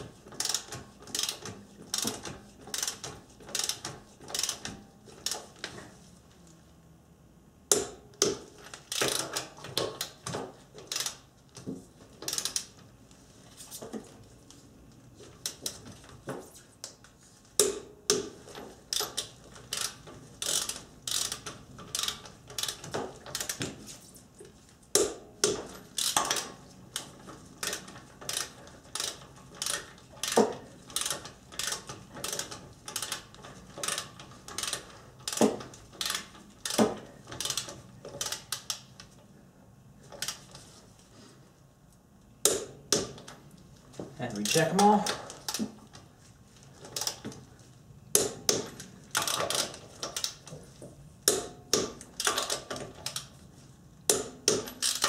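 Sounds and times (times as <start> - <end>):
torque wrench ratcheting: 0.3 - 5.5, 8.8 - 10.2, 10.8 - 11.2, 12.2 - 12.8, 18.9 - 23.6, 25.9 - 36.8, 37.4 - 38.9, 49.1 - 50.4, 54.5 - 55.0.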